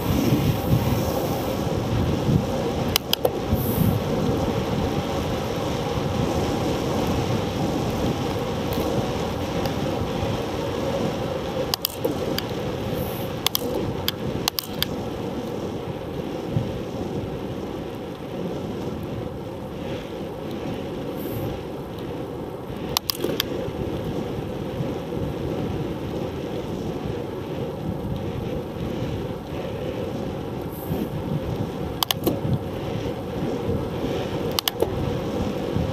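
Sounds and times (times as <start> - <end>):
bicycle road rumble: 0.0 - 35.9
wind on microphone: 0.0 - 35.9
sharp clicks: 2.9 - 3.4, 11.7 - 12.5, 13.4 - 15.0, 22.9 - 23.5, 32.0 - 32.4, 34.5 - 34.9.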